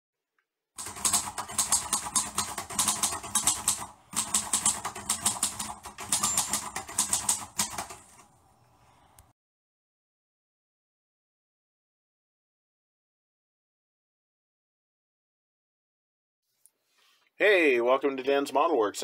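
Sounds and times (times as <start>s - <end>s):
sharp rapid clicks: 0.8s - 8.3s.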